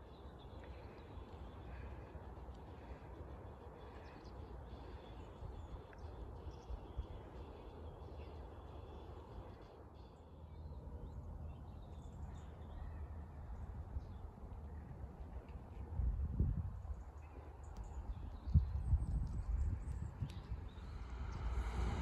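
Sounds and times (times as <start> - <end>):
low rumble: 20.5 - 22.0.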